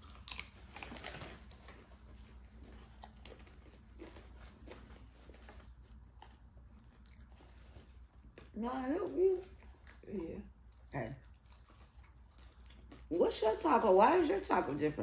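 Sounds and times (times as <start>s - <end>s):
paper wrappers crinkling: 0.0s - 6.1s
crunchy bite into taco: 0.0s - 7.3s
faint chewing: 0.0s - 15.0s.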